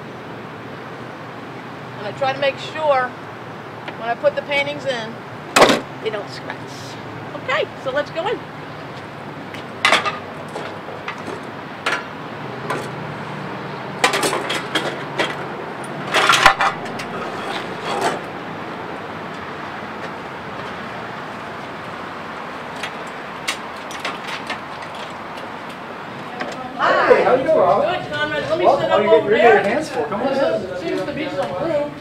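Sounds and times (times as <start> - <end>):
steady background noise: 0.0 - 32.0
hard objects knocking and clattering: 9.8 - 13.0, 14.0 - 18.3.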